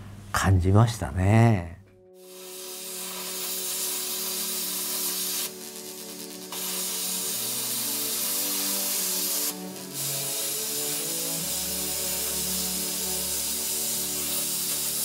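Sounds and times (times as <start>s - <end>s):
soft background music: 0.3s - 15.0s
plasma cutter hissing: 2.2s - 15.0s.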